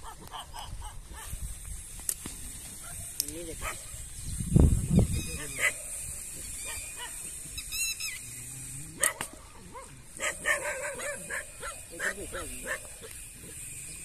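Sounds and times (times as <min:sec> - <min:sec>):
dog barking and yipping: 0:03.6 - 0:03.9, 0:05.4 - 0:06.0, 0:06.6 - 0:07.2, 0:09.0 - 0:13.2.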